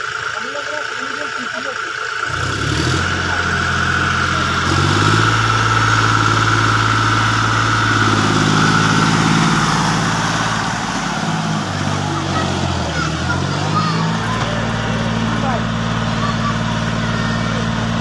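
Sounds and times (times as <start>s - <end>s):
tractor diesel engine revving: 0.0s - 18.0s.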